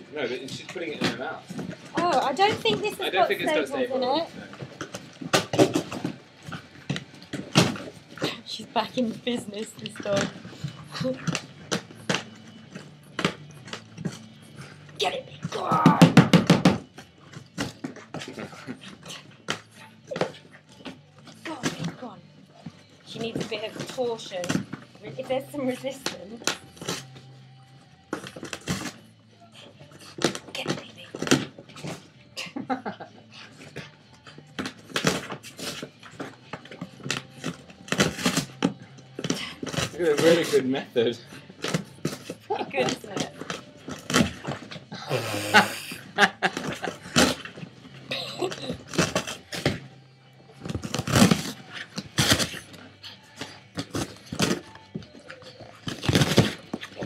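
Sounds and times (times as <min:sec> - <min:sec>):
dog tearing cardboard: 0:33.6 - 0:40.6, 0:46.0 - 0:47.7, 0:48.5 - 0:49.8, 0:50.6 - 0:52.8, 0:53.4 - 0:57.0
cardboard ripping and crumpling: 0:50.7 - 0:52.7, 0:55.8 - 0:57.0.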